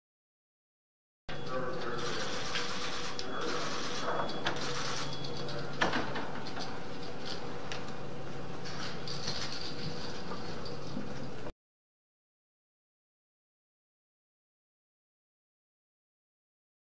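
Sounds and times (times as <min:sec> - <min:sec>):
steady low hum: 0:01.3 - 0:11.5
scattered clicks: 0:01.7 - 0:05.6.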